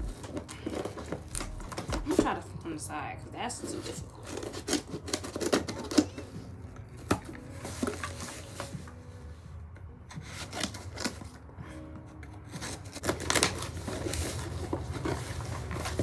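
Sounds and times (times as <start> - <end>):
package rubbing and scraping: 12.5 - 16.0.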